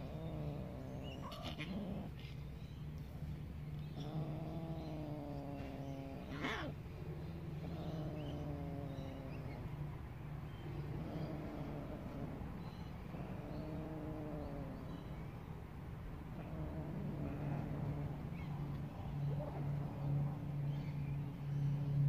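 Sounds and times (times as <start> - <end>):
cat yowling: 1.1 - 2.2, 4.4 - 6.8.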